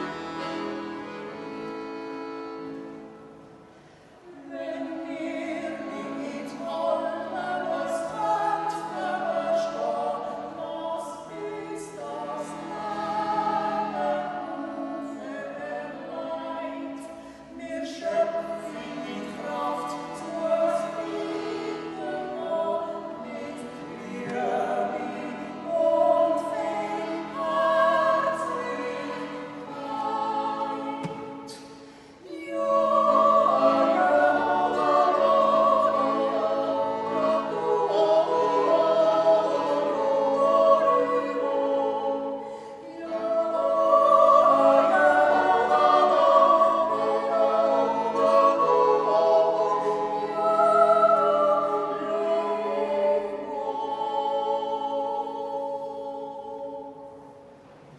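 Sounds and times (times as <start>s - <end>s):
button accordion: 0.0s - 3.4s, 11.3s - 16.0s, 18.2s - 31.6s, 32.6s - 41.8s.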